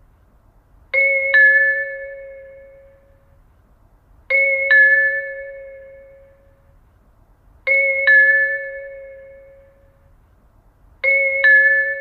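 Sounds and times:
two-tone ding-dong chime: 1.0s - 3.2s, 4.3s - 6.6s, 7.7s - 10.0s, 11.0s - 12.0s.

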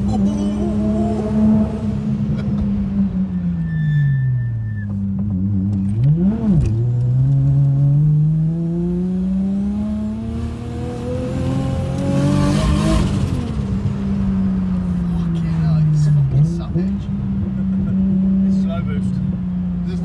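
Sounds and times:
car engine revving and accelerating: 0.0s - 3.4s, 4.9s - 20.0s.

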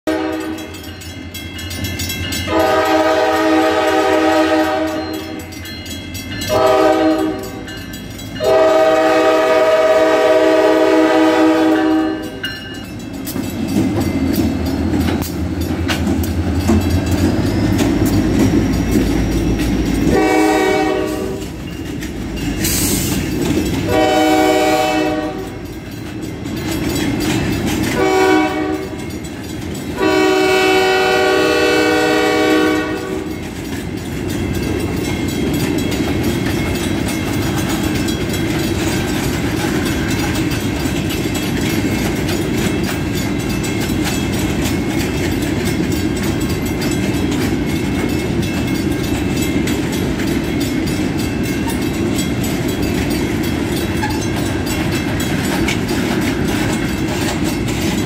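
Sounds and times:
train air horn blasts: 0.0s - 0.7s, 2.5s - 5.4s, 6.5s - 7.7s, 8.4s - 12.4s, 20.0s - 21.6s, 23.9s - 25.6s, 27.9s - 29.0s, 30.0s - 33.3s.

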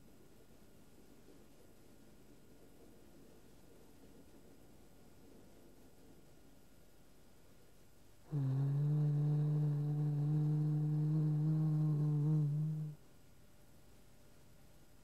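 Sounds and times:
low voice humming: 8.3s - 13.0s.

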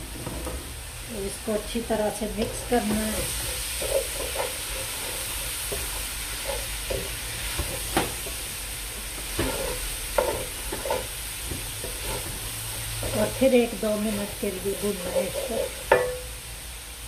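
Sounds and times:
meat sizzling in a pan: 0.6s - 17.0s
spatula scraping a pan: 2.3s - 16.2s.

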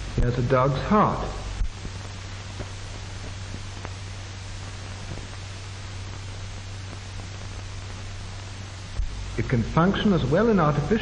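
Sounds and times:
faint crackles: 0.0s - 11.0s
film soundtrack hiss and hum: 0.0s - 11.0s.

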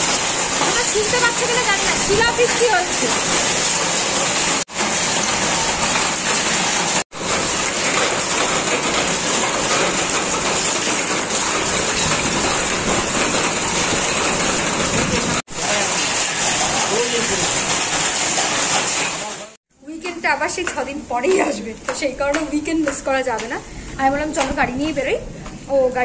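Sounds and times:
heavy rain pouring: 0.0s - 19.6s.

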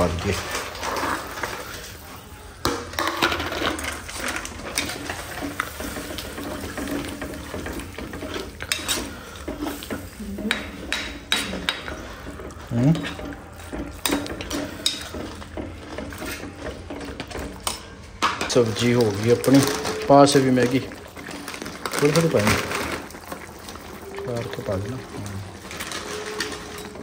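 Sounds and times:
metal ladle scraping pot: 0.0s - 2.0s, 2.6s - 27.0s
light sizzle: 0.0s - 27.0s.

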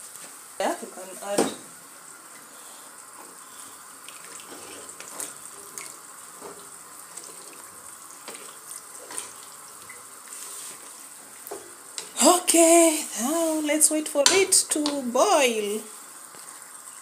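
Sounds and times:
steady hiss: 0.0s - 17.0s
spatula stirring rice in water: 3.4s - 11.1s.

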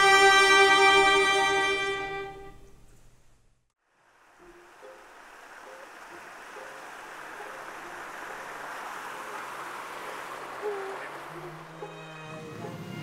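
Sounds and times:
steady nature hiss: 0.0s - 13.0s
low hooting bird calls: 7.4s - 12.6s.

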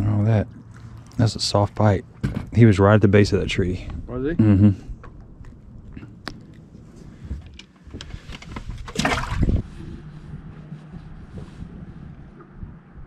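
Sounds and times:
low hum: 0.0s - 13.0s
wind on microphone: 4.9s - 13.0s
light clicks and rustles: 5.0s - 9.0s
fish splashing into water: 8.9s - 9.6s.

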